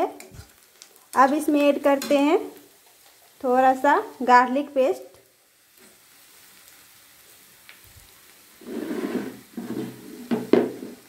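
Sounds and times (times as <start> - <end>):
onions sizzling in hot oil: 0.0 - 11.0
metal spatula scraping pan: 8.6 - 11.0
spatula knocking on pan: 10.3 - 11.0.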